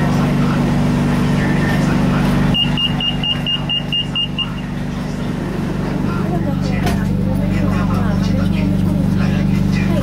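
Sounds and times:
train humming at platform: 0.0 - 10.0
short high warning beeps: 2.5 - 4.8.

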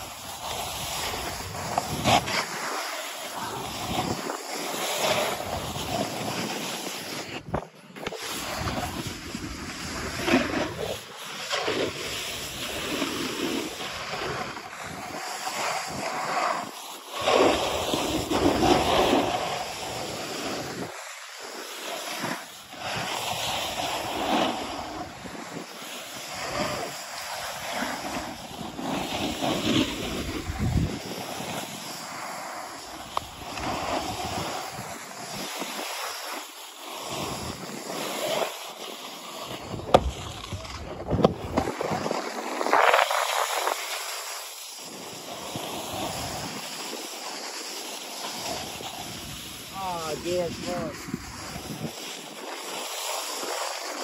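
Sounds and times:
wind buffeting microphone: 0.0 - 2.6, 3.4 - 4.4, 29.2 - 31.6, 39.6 - 43.8, 48.5 - 52.1
snowboard scraping on snow: 0.0 - 54.0.

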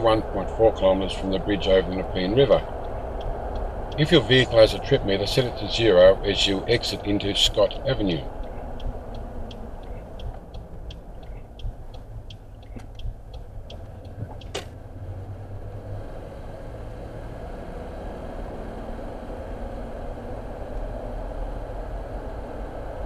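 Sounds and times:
car road and engine rumble: 0.0 - 23.0
turn indicator ticking: 0.2 - 15.7.

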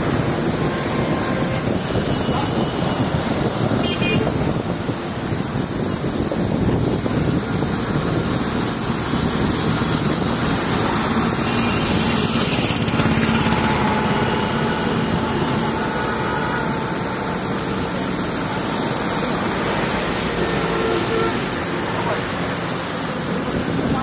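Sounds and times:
motor engine running: 9.2 - 18.7.

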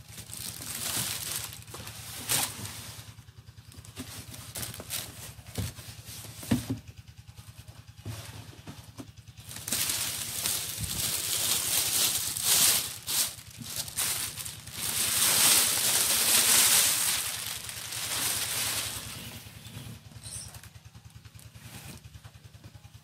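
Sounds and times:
plastic bag crinkling: 0.0 - 3.2, 3.8 - 5.7, 9.4 - 19.7
low fast pulsing hum: 0.0 - 22.9.

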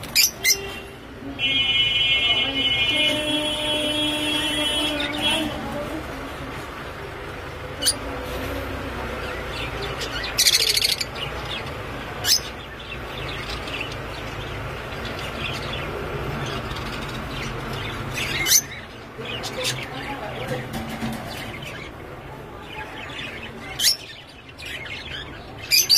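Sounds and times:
birds chirping shrilly: 0.0 - 0.9, 7.4 - 25.9.

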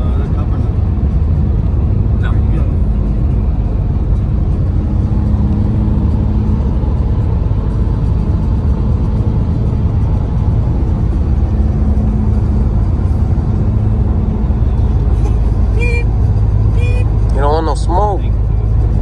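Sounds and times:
car interior road rumble: 0.0 - 19.0.

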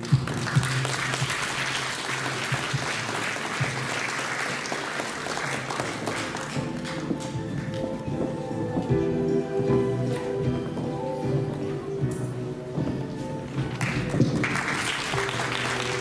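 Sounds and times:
audience applauding: 0.0 - 7.8, 13.6 - 16.0
background music: 0.0 - 16.0.

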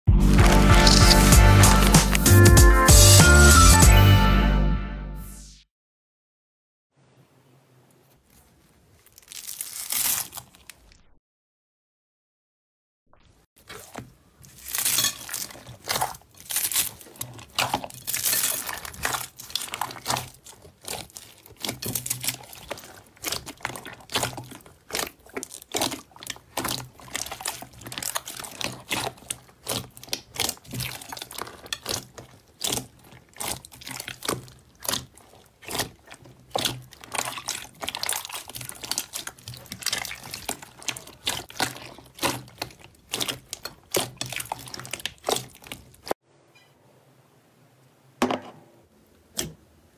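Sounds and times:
slime squelching: 0.1 - 3.6, 8.0 - 11.1, 13.2 - 46.2
foam beads crackling: 0.3 - 2.3, 9.0 - 10.8, 14.4 - 32.0.

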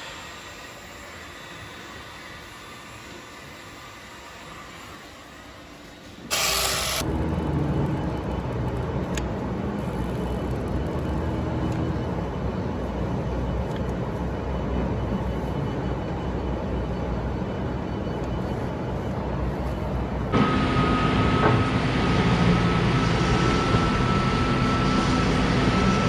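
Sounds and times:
loud hiss: 6.2 - 7.0
faint hum: 7.0 - 26.0
low machine rumble: 7.0 - 26.0.

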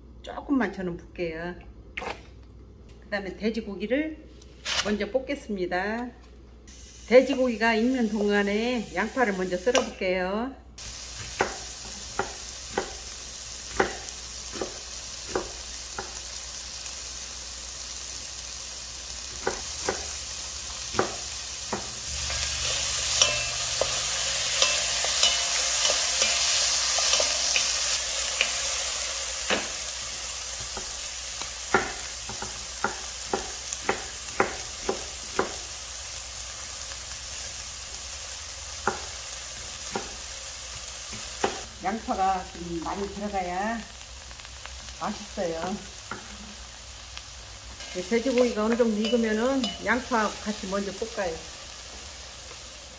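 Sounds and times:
meat sizzling in pan: 6.7 - 9.9, 10.8 - 52.9
knife chopping on cutting board: 19.4 - 20.1, 31.7 - 35.6.

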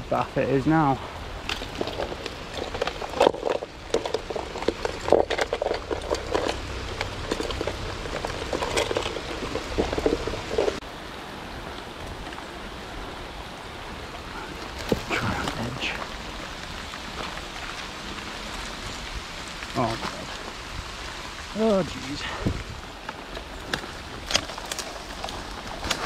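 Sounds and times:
steady rain: 0.0 - 26.0
knocks and rustling from movement: 1.4 - 10.8.

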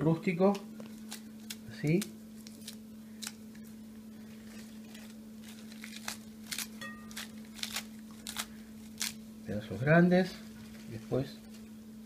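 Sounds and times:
steady low hum: 0.0 - 12.0
lettuce leaves tearing: 0.5 - 9.2.

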